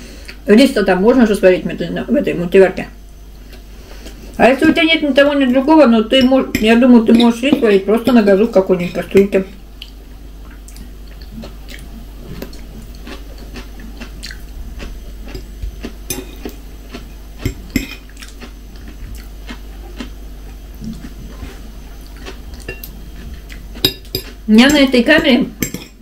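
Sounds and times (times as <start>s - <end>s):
person chewing food: 3.4s - 4.3s, 9.8s - 24.5s.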